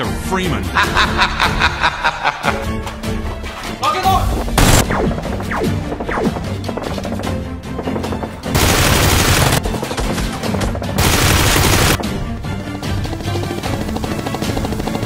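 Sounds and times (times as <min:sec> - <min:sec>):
background music: 0:00.0 - 0:15.0
automatic gunfire bursts: 0:08.0 - 0:09.7, 0:11.0 - 0:12.0.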